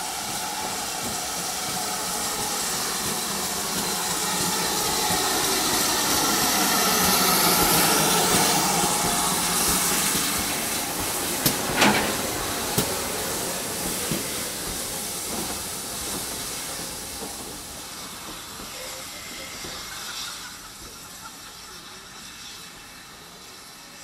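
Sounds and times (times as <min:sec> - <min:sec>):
steam locomotive hissing: 0:00.0 - 0:24.0
sharp clanks: 0:11.4 - 0:13.0.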